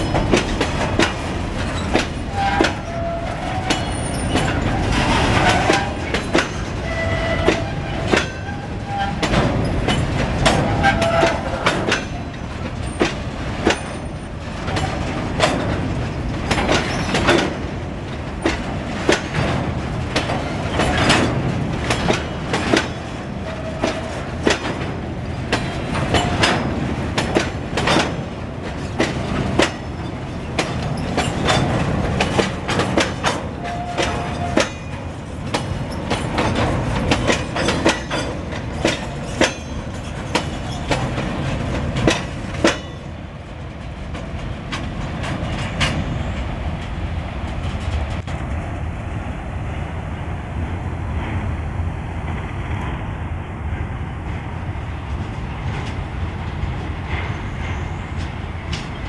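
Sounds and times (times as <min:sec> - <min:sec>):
wheels clacking over rail joints: 0:00.0 - 0:48.9, 0:53.7 - 0:59.0
wheels squealing: 0:01.6 - 0:13.1.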